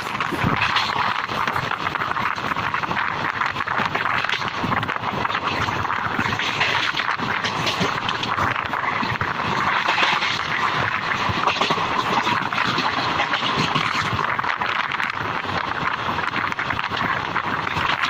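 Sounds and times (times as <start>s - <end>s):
wind rushing on microphone: 0.0s - 18.0s
train wheels clattering on rails: 5.4s - 14.2s.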